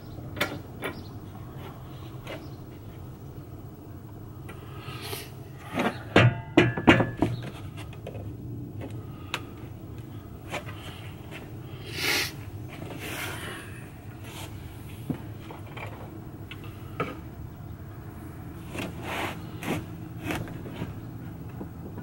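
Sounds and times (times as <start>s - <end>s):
metal knocks and clanks: 5.8s - 8.2s.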